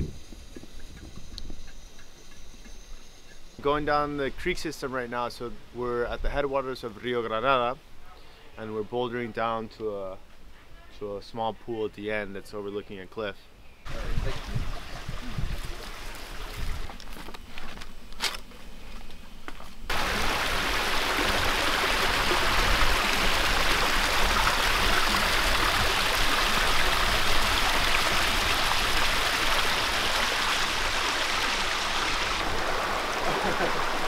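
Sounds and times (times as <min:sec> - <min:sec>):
water rushing over rocks: 0:19.9 - 0:34.0.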